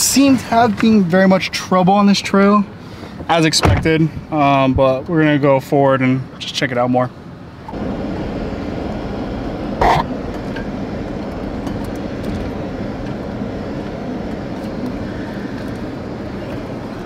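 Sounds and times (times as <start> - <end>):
vehicle engine running: 7.5 - 17.0.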